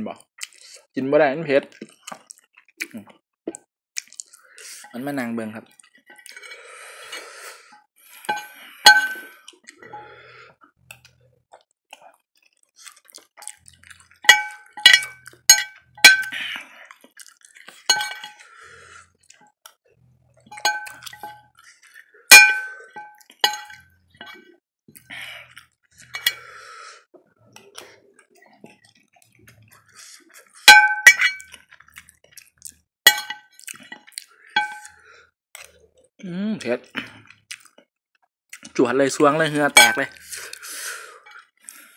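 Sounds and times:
fork clinking and scraping on plate: 8.2 - 9.3, 14.2 - 16.4, 17.9 - 18.4, 20.5 - 21.4, 22.3 - 24.4, 26.0 - 26.4, 30.7 - 31.5, 33.1 - 33.4, 34.6 - 34.9.

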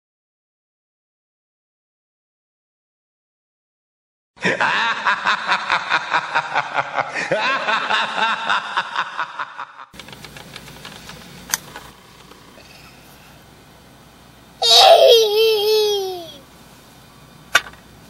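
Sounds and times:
person laughing maniacally: 4.4 - 9.9, 14.6 - 16.4.

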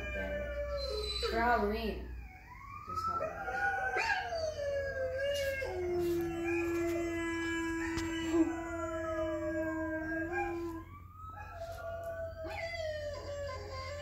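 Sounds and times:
recorded dog howling: 0.0 - 14.0.

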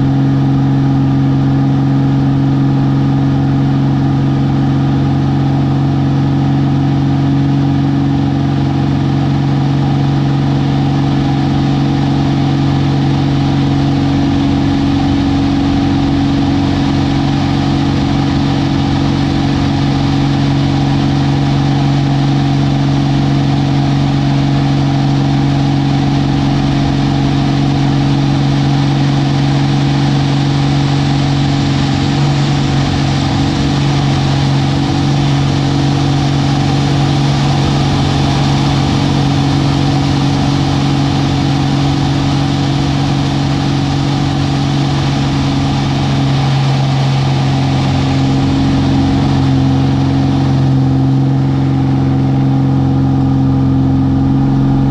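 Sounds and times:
propeller plane engine drone: 0.0 - 54.9
rushing air: 25.7 - 54.9.

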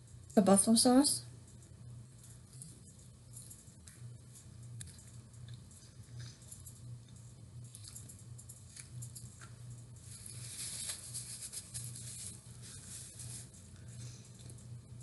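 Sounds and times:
low steady hum: 0.0 - 15.0
paper napkin crinkling: 10.0 - 14.6.

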